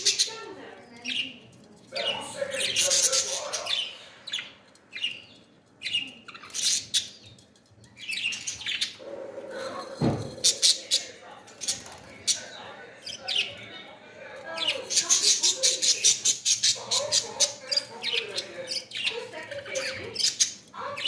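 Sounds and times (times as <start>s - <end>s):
budgerigars chirping: 0.0s - 7.4s, 8.0s - 9.3s, 14.6s - 21.0s.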